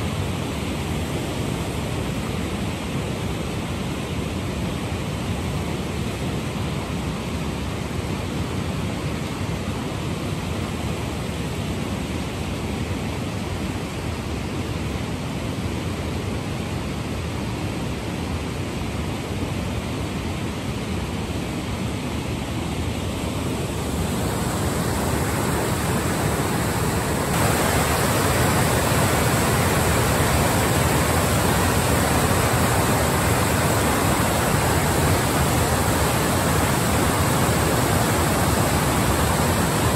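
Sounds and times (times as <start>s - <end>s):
water roaring over a weir: 0.0s - 39.9s.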